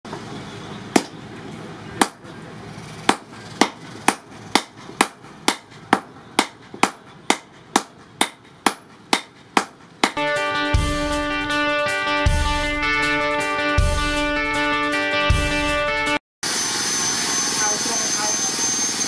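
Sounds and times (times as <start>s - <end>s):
hammers striking steel on anvil: 0.9s - 1.2s, 2.0s - 2.3s, 3.1s - 10.2s.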